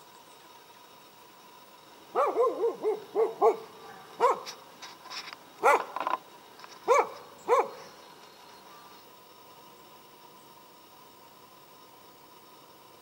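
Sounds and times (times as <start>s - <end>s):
dog barking: 2.2s - 4.6s, 5.6s - 6.0s, 6.8s - 7.8s.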